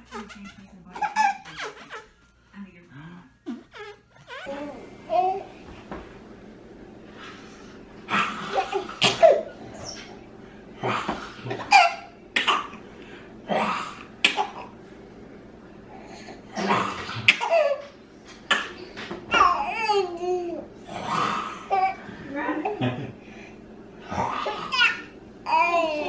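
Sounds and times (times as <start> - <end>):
baby laughing and squealing: 0.0 - 2.2, 3.6 - 5.4.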